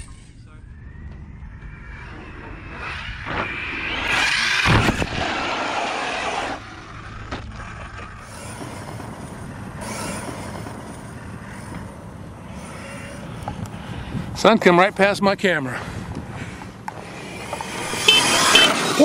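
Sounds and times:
electric toy truck motor whining: 0:06.1 - 0:13.4, 0:17.0 - 0:19.0.

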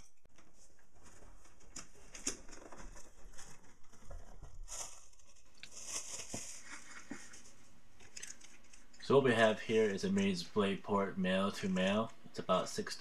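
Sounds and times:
plastic packing crinkling: 0:00.5 - 0:07.6.

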